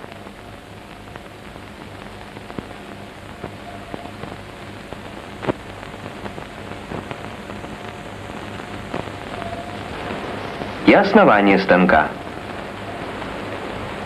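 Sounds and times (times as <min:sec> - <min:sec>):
film soundtrack crackle and hiss: 0:00.0 - 0:14.0
steady low hum: 0:00.0 - 0:14.0
clicks and pops: 0:05.0 - 0:10.8.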